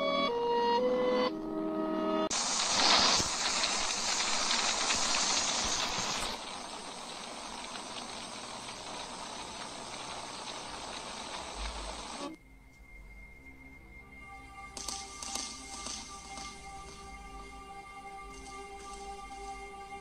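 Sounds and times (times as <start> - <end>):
hissing static noise: 2.3 - 12.4, 14.4 - 20.0.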